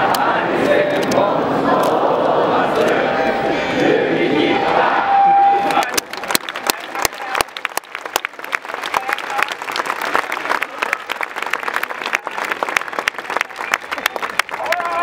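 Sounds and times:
scattered voices: 0.0 - 7.5
crowd applauding: 5.6 - 15.0.

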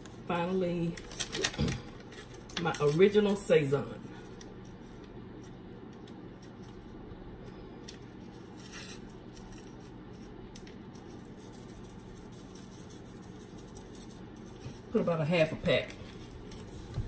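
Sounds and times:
paper packet rustling: 0.0 - 3.5, 7.9 - 17.0
low steady hum: 0.0 - 17.0.

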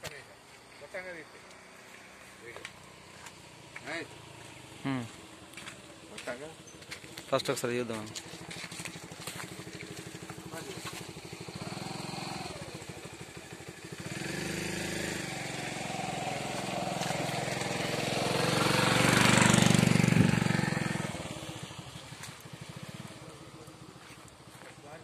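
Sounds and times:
tractor engine running: 5.5 - 25.0.

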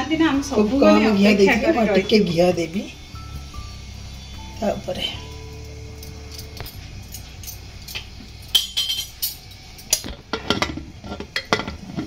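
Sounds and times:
ladle and lid clinking on metal pot: 6.4 - 12.0.

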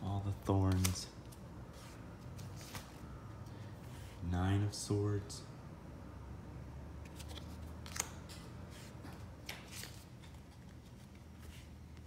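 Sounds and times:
cards clicking and sliding: 0.6 - 3.0, 7.0 - 11.2.

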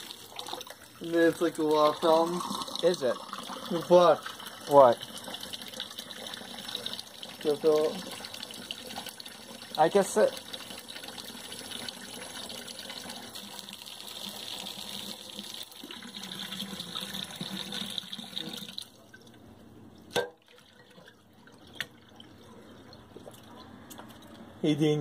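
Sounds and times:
faucet running into water: 0.0 - 19.0
water spilling into sink: 0.0 - 19.2.

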